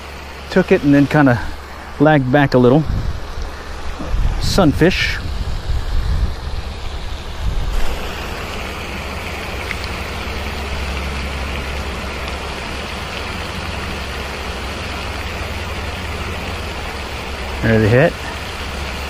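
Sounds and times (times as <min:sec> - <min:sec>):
fountain spray hissing: 0:00.0 - 0:19.0
wind rumbling on microphone: 0:01.4 - 0:15.1.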